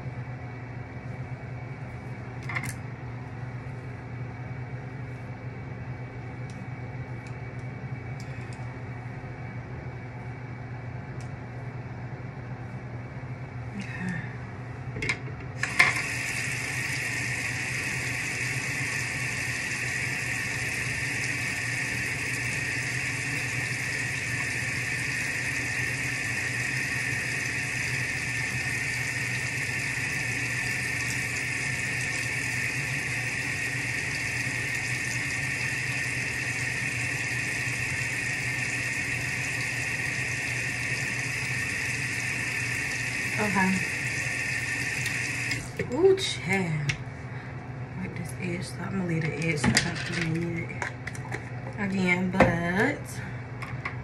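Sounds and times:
tap water running into sink: 15.6 - 45.8.

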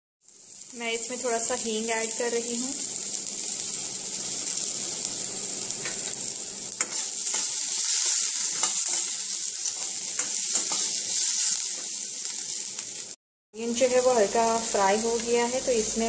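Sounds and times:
vegetables sizzling in oil: 0.2 - 16.0
spoon scraping and knocking pan: 6.8 - 11.9.

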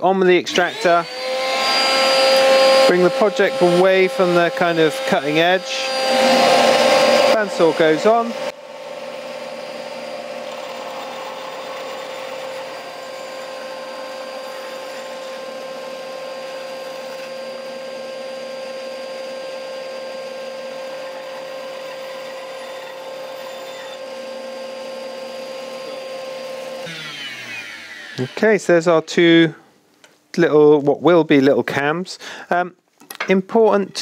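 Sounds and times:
dust extractor hum: 0.0 - 29.6
bandsaw cutting wood: 0.5 - 28.9.

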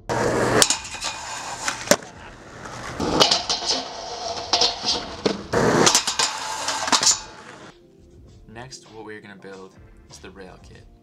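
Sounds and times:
skateboard grinding on metal rail: 0.0 - 7.7
skateboard wheels rolling on asphalt: 0.0 - 7.7
skateboard clacks: 0.1 - 7.7.

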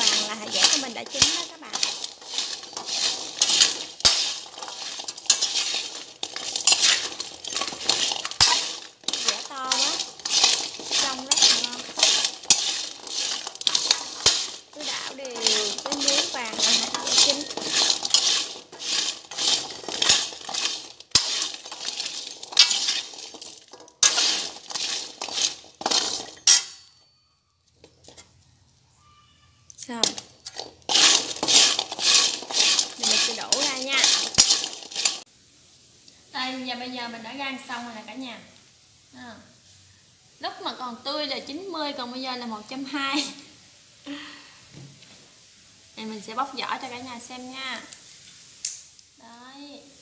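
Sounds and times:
chestnuts scraping in salt: 0.0 - 26.6, 29.7 - 35.3, 46.0 - 50.0.

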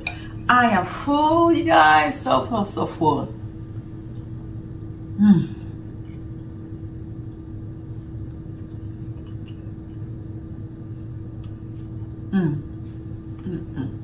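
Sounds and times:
low electrical hum: 0.0 - 14.0
person saying mmm: 5.2 - 5.7, 12.3 - 14.0.

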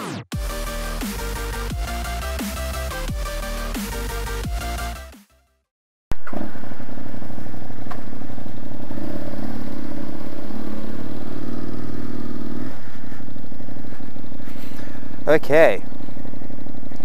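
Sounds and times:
motorcycle engine pulling away: 6.7 - 17.0.

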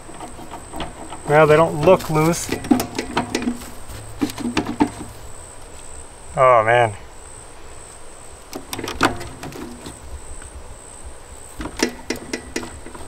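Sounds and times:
clicks and creaks of metal panel: 0.0 - 5.2, 8.5 - 10.0, 11.6 - 13.0
high insect drone: 0.0 - 13.0.

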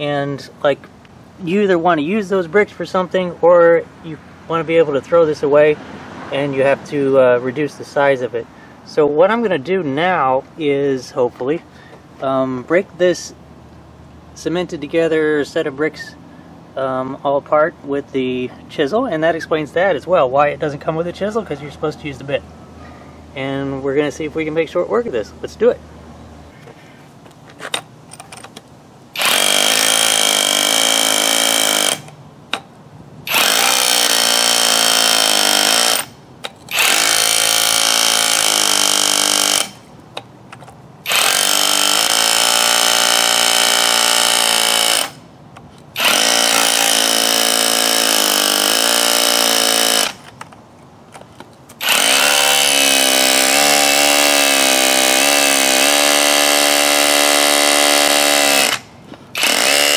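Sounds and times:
hammer drill hammering into bricks: 29.2 - 32.2, 33.3 - 39.8, 41.0 - 45.2, 46.0 - 50.3, 51.8 - 59.9.

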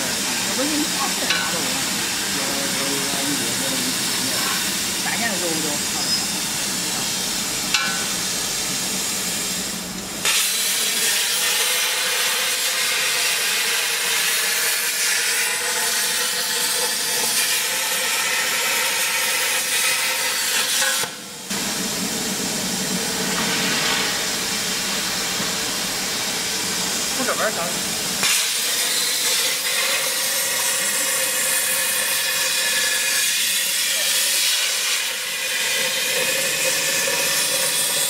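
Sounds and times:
plasma torch cutting hiss: 0.0 - 38.0.

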